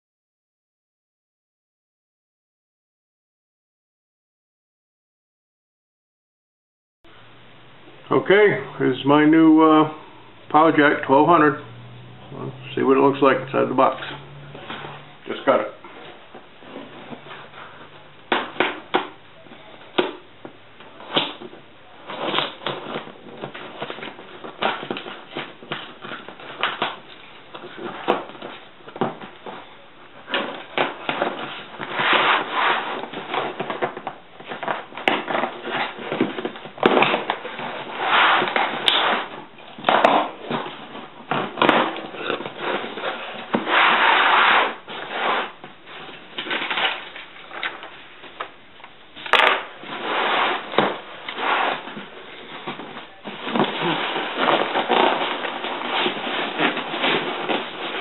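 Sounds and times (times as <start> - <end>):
cardboard flaps scraping: 13.8 - 19.2, 20.8 - 58.0
packing tape slit and peeled: 30.3 - 40.7.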